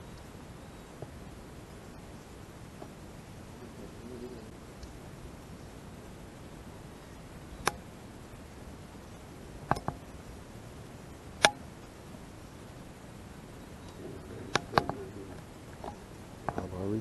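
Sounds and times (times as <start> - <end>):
low background noise: 0.0 - 17.0
sharp knocks: 9.7 - 10.0.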